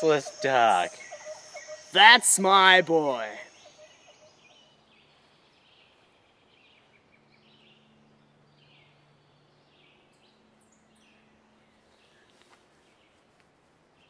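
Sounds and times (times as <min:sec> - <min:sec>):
high chirps: 0:00.0 - 0:04.4.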